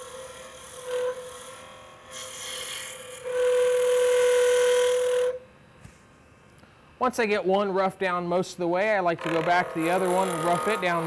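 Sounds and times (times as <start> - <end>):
gouge cutting wood on lathe: 0.0 - 5.2, 9.2 - 11.0.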